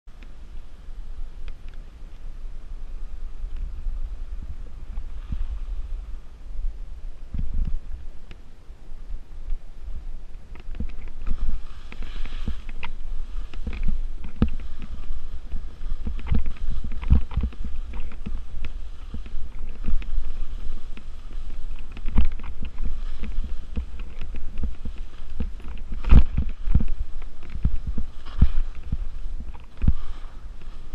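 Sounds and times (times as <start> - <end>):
skis swishing through slush: 0.4 - 8.2, 9.8 - 30.9
skis knocking on snow chunks: 10.7 - 30.9.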